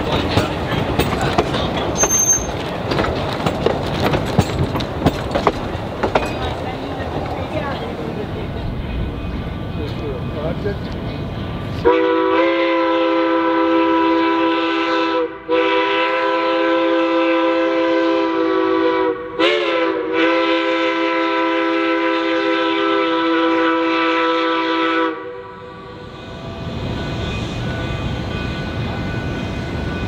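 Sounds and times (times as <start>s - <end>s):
steam locomotive whistle: 2.0s - 2.6s, 11.8s - 26.5s.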